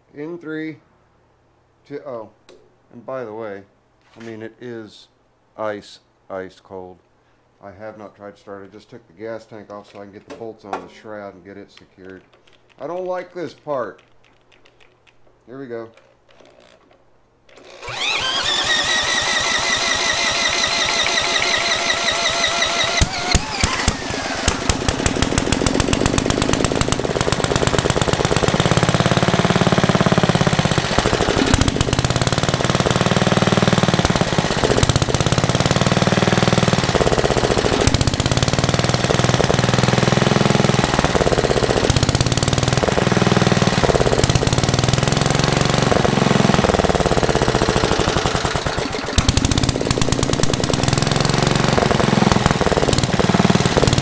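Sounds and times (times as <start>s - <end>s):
cordless drill whining: 17.5s - 26.9s
single-cylinder engine popping: 17.6s - 54.0s.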